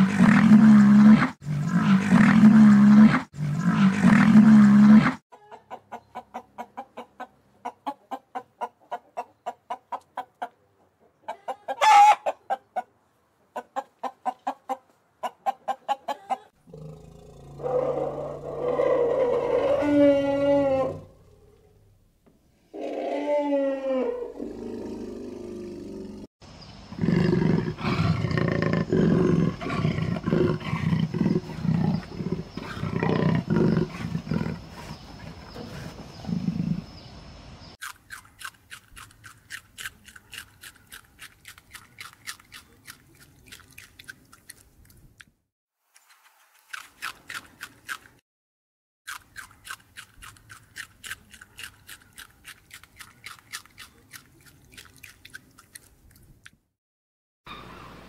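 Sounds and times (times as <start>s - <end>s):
small animals chewing leafy greens: 37.8s - 45.4s, 46.0s - 48.2s, 49.1s - 56.7s.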